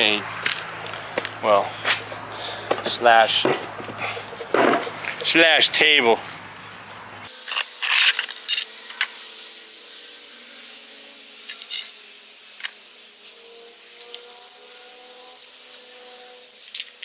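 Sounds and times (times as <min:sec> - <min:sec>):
wooden boards knocking and scraping: 0:02.7 - 0:05.2.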